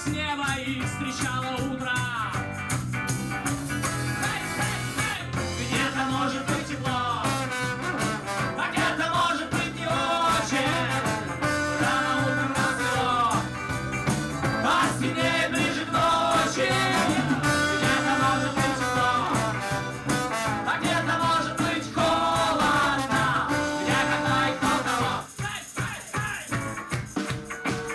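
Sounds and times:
electric guitar: 0.0 - 25.4, 26.5 - 27.9
drums: 0.0 - 27.9
accordion: 3.0 - 25.3
trombone: 3.7 - 25.4.

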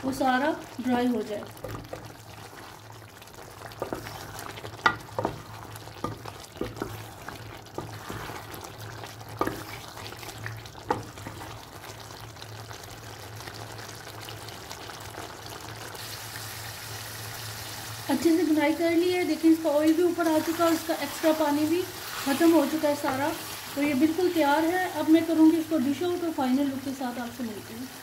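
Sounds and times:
curry sizzling in a pot: 0.0 - 28.0
wooden spatula scraping metal pot: 3.7 - 11.6, 20.2 - 23.9.

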